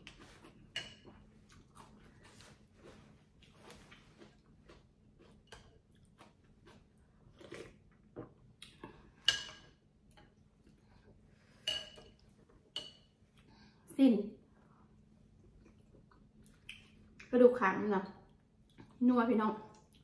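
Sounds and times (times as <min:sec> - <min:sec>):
chewing: 0:00.1 - 0:09.0.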